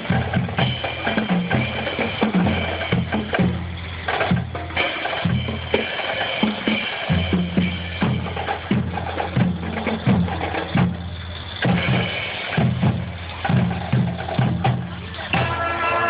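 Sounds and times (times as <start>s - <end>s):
marching drums: 0.0s - 16.0s
held horn notes: 14.6s - 16.0s.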